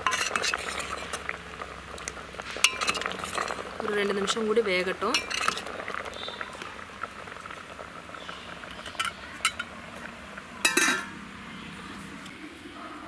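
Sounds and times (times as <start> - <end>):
metal utensils clinking: 0.0 - 1.3, 2.6 - 3.6, 5.0 - 5.8, 8.8 - 9.7, 10.6 - 11.2.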